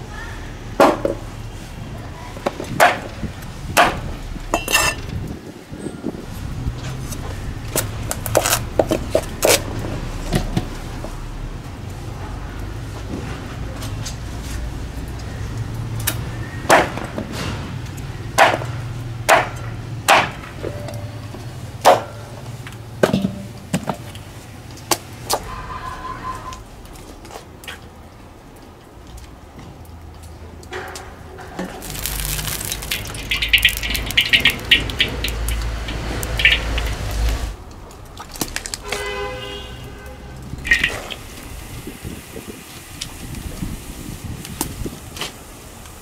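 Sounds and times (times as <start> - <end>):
oil hissing and crackling in wok: 6.2 - 12.9, 31.7 - 46.0.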